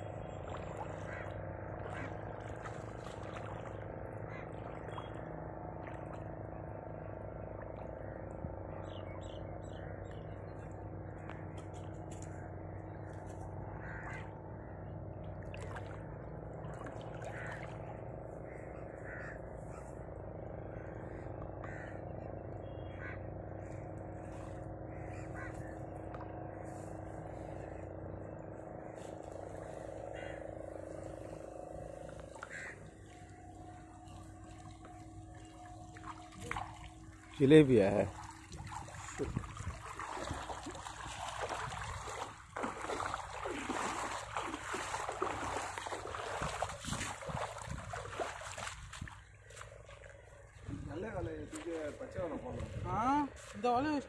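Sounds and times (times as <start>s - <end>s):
low mechanical hum: 0.0s - 54.0s
water splashing and dripping: 1.7s - 5.1s, 15.3s - 17.8s, 32.0s - 50.7s
short animal calls: 32.4s - 32.8s.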